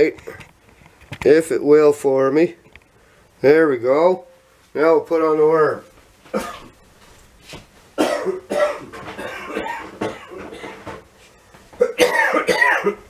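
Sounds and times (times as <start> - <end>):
man coughing: 6.3 - 6.7, 8.0 - 10.8, 11.8 - 13.0.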